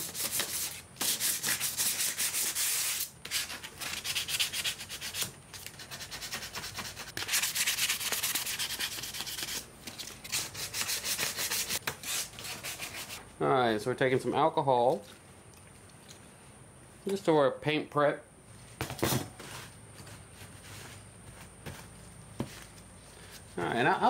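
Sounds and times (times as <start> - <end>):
sandpaper scrubbing metal mesh: 0.0 - 9.7, 10.3 - 13.2.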